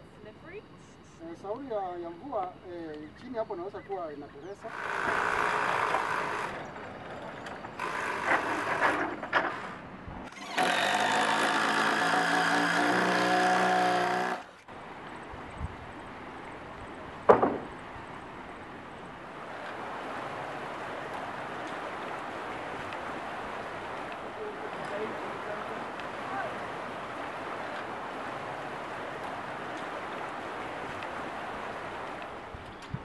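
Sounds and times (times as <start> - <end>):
outdoor background: 0.0 - 33.0
work noises: 4.6 - 14.7, 17.2 - 17.8
cordless drill motor running: 4.7 - 6.6, 10.3 - 14.5
sharp knock: 17.3 - 17.7.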